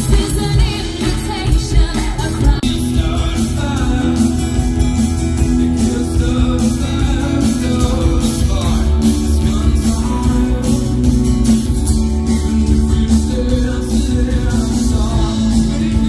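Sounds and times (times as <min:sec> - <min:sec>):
women singing with live band: 0:00.0 - 0:04.3
man singing with band: 0:00.0 - 0:16.0.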